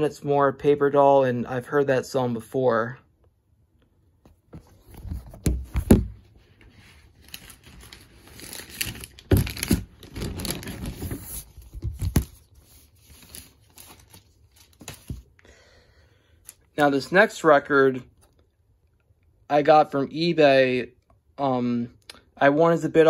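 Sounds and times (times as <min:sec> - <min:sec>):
record sleeves rustling: 0:04.2 - 0:15.4.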